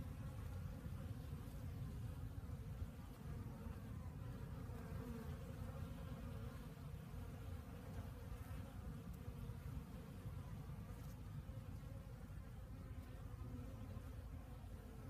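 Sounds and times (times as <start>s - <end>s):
honeybees buzzing faintly: 0.0s - 15.0s.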